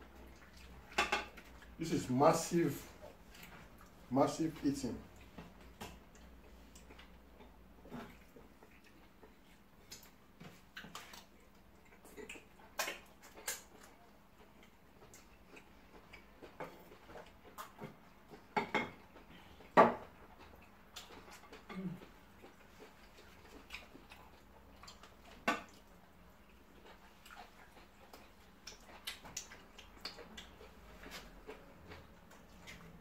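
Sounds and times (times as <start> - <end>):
people chewing food: 0.0 - 33.0
wet mouth clicks and smacks: 9.8 - 14.0, 27.2 - 30.7.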